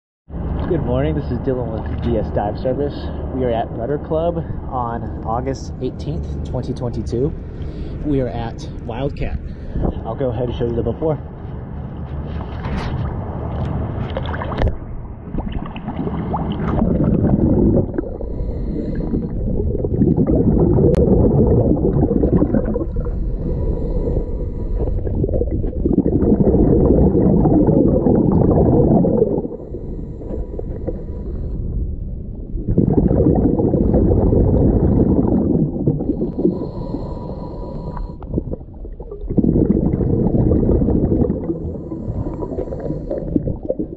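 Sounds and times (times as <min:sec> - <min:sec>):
underwater air bubbling: 0:00.3 - 0:43.9
water splashes: 0:12.1 - 0:31.6.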